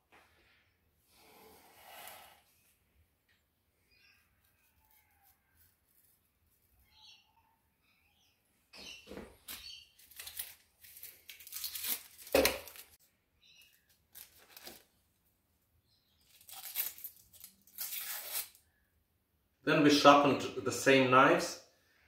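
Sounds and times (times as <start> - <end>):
paper rustling and tearing: 9.5 - 13.0, 14.1 - 14.9, 16.3 - 18.6.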